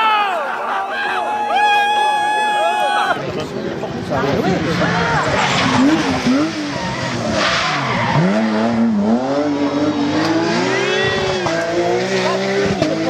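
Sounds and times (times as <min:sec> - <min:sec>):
rally car engine at full throttle: 0:03.2 - 0:13.0.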